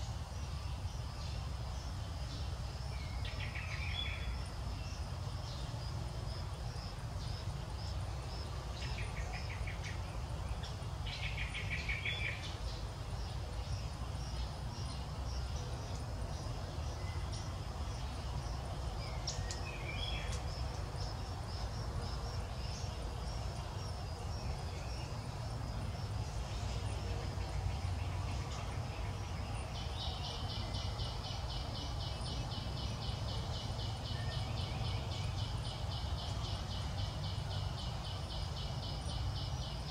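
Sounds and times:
high insect drone: 0.0s - 39.9s
pulsing insect call: 0.0s - 39.9s.

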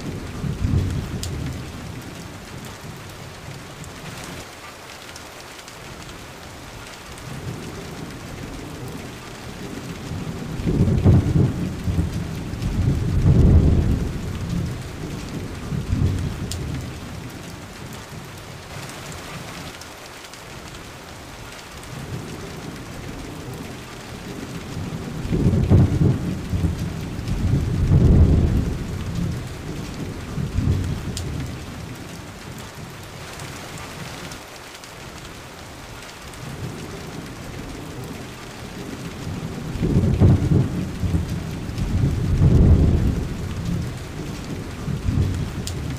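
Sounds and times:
low thunder rolling: 0.0s - 3.0s, 7.3s - 17.3s, 21.9s - 32.7s, 36.4s - 45.9s
steady rain: 0.0s - 45.9s.

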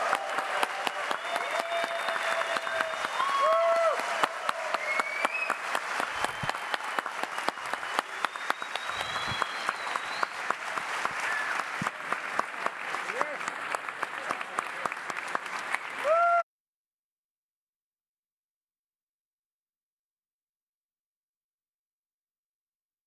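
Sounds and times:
cheers and whistles: 0.0s - 12.2s, 16.0s - 16.5s
large audience applauding: 0.0s - 16.4s.

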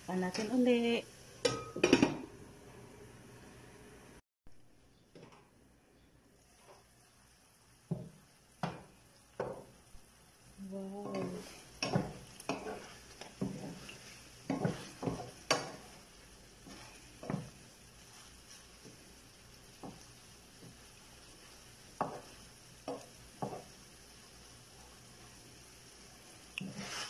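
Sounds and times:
sauce sizzling: 0.0s - 27.0s
spatula knocking on pan: 7.9s - 9.7s, 11.0s - 13.8s, 14.4s - 15.9s, 16.6s - 17.6s, 19.7s - 20.8s, 22.0s - 23.7s
wooden spatula scraping pan: 11.0s - 19.1s, 26.6s - 27.0s.

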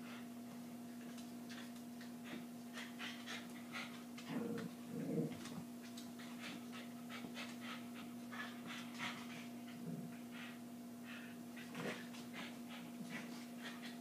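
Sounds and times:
dogs panting rapidly: 6.2s - 10.6s.

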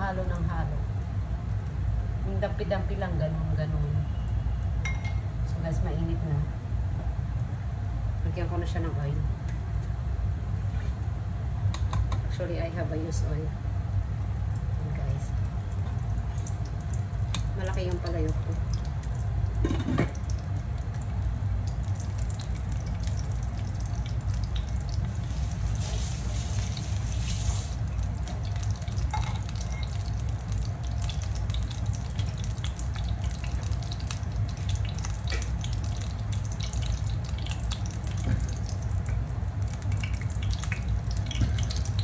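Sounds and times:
gas stove low rumble: 0.0s - 42.0s
pot boiling: 11.8s - 42.0s
oil crackling and popping: 15.3s - 42.0s.

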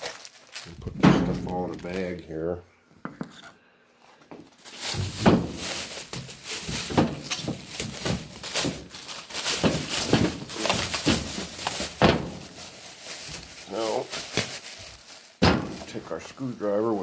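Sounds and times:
bag rustling and crinkling: 0.0s - 2.3s, 4.4s - 17.0s
handling knocks: 0.9s - 1.8s, 4.9s - 12.6s, 15.4s - 16.0s.

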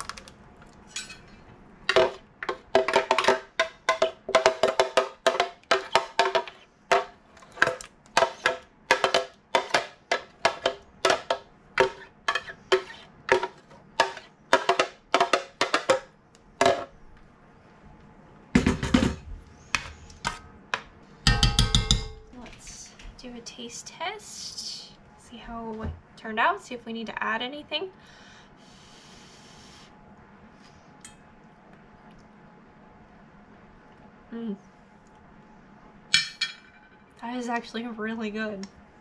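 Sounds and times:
utensil knocking and scraping container: 1.9s - 16.0s.

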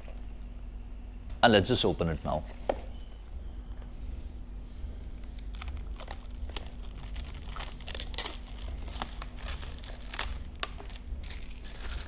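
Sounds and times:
plastic wrapping crinkling and tearing: 5.0s - 12.0s.

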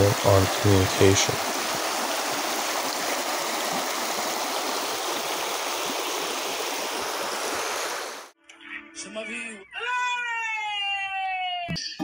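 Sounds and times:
stream flowing over stones: 0.0s - 8.4s.

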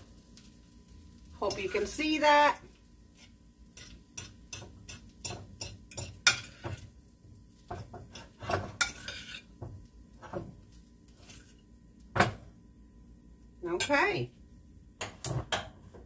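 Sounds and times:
spoon scraping ceramic dish: 3.8s - 6.8s, 7.7s - 9.5s.

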